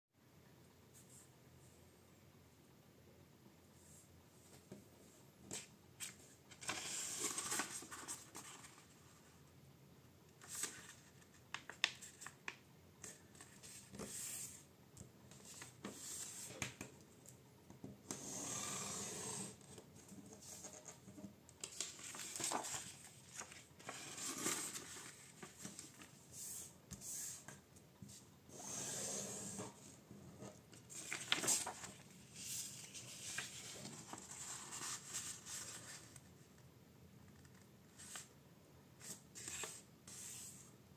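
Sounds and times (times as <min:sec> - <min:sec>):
paper rustling while folded: 0:05.5 - 0:09.1, 0:10.4 - 0:12.4, 0:21.6 - 0:26.7, 0:30.8 - 0:36.3.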